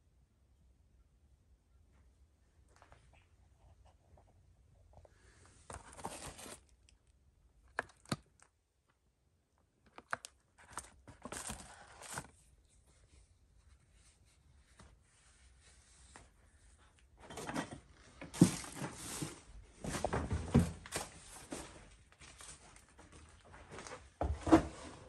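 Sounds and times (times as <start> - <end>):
paper rustling and crinkling: 5.6 - 6.8, 9.9 - 13.2, 17.3 - 24.6.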